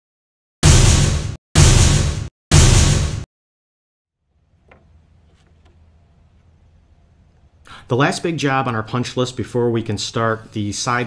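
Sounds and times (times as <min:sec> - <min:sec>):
steady low hum: 0:04.3 - 0:08.0.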